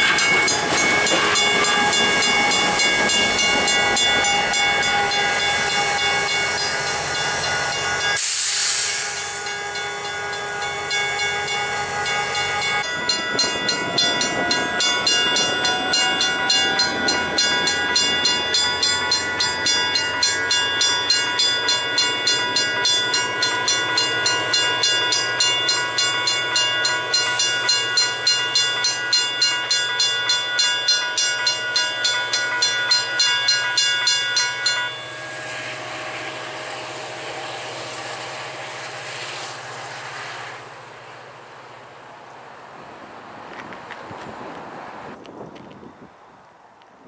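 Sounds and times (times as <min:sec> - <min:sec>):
diesel locomotive rumbling: 0:00.0 - 0:46.8
diesel locomotive humming and whining: 0:00.0 - 0:47.0.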